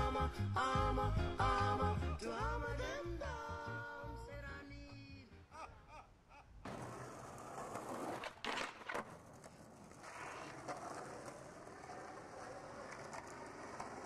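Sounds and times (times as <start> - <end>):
skateboard clacks: 6.6 - 14.0
skateboard wheels rolling on asphalt: 6.6 - 14.0.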